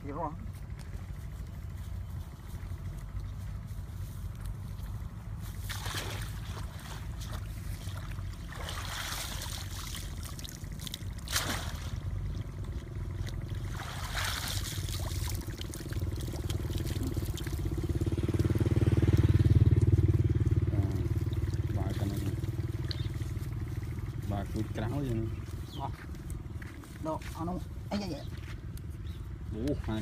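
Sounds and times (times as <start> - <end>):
water splashing and trickling: 5.1 - 25.6.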